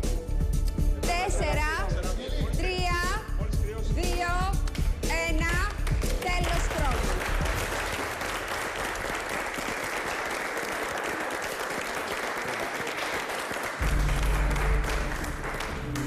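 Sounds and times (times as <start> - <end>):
music: 0.0 - 9.3, 13.8 - 16.0
people applauding: 5.5 - 16.0.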